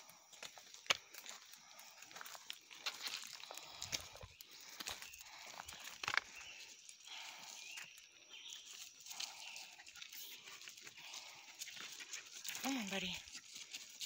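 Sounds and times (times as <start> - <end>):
footsteps crunching through leaves: 0.3 - 5.9.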